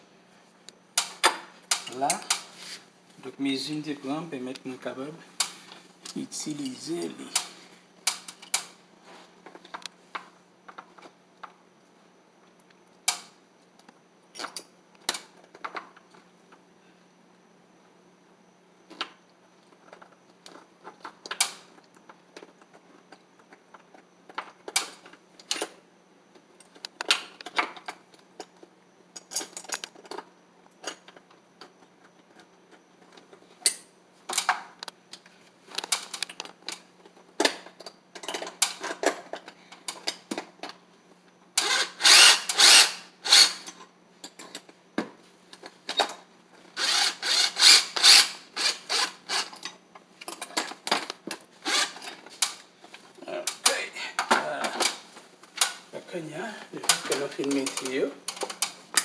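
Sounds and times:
clicks and knocks of parts handled: 26.3s - 40.8s, 49.5s - 55.8s, 56.8s - 59.0s
cordless drill bursts: 41.6s - 43.7s, 46.8s - 49.6s, 51.6s - 52.0s.

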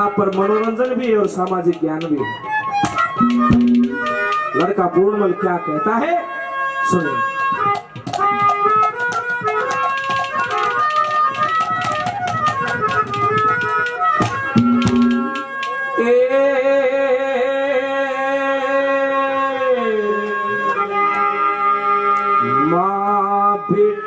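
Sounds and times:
hand drum strokes: 0.0s - 4.7s, 7.4s - 15.8s
melodic folk instrument: 0.0s - 16.0s.

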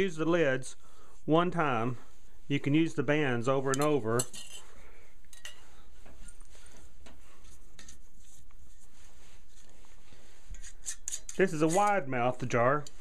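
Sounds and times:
metal clinking on glass jars: 3.7s - 4.7s.

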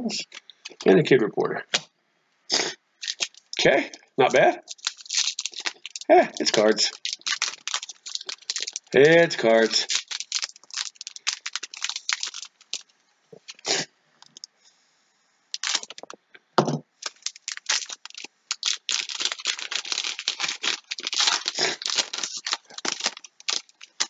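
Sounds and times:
foil wrapper crinkling and tearing: 0.2s - 0.9s, 3.0s - 3.6s, 4.6s - 14.5s, 15.5s - 16.2s, 17.0s - 24.0s.

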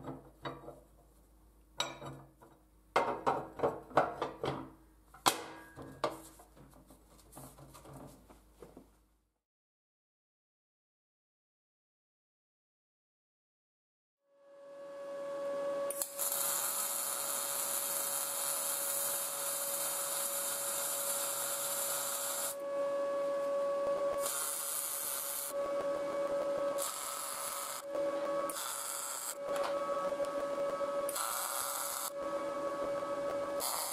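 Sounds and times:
welding arc crackling and hissing: 15.9s - 22.6s, 23.8s - 33.9s
steady hum: 22.6s - 33.9s.

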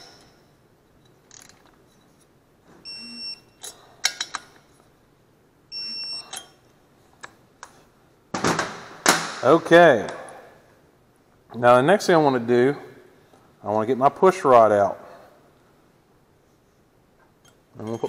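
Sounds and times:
torque wrench beeping: 2.8s - 3.7s, 5.7s - 6.6s, 17.4s - 18.0s.

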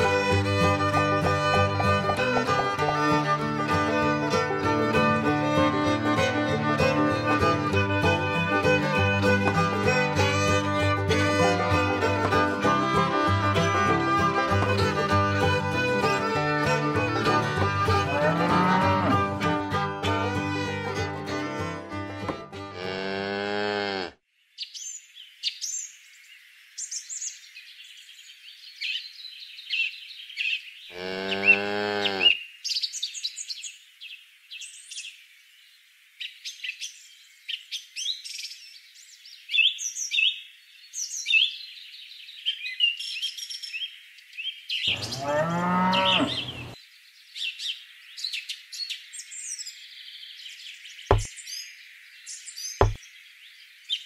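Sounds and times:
birds chirping: 0.0s - 4.3s, 24.6s - 35.2s, 36.2s - 54.0s
cow mooing: 17.9s - 19.4s, 22.7s - 24.2s, 30.9s - 32.4s, 44.9s - 46.8s.

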